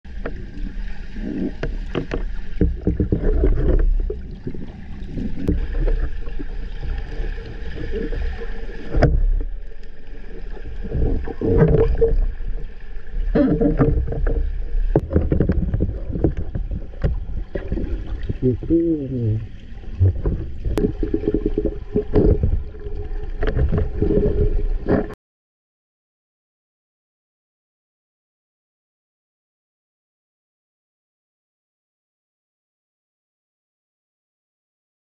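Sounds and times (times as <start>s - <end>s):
low underwater rumble: 0.1s - 25.2s
underwater bubbling: 0.1s - 25.2s
underwater clicks: 13.3s - 25.2s.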